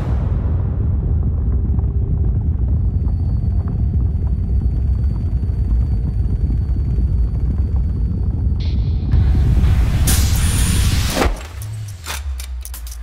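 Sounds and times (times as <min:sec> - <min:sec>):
vibration rig low rumble: 0:00.0 - 0:13.0.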